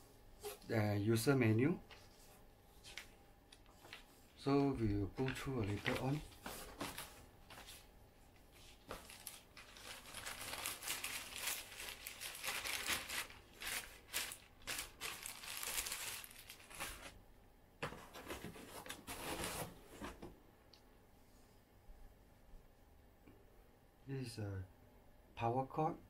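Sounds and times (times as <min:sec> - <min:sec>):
plastic bags crinkling: 0:05.2 - 0:07.7, 0:08.8 - 0:17.2.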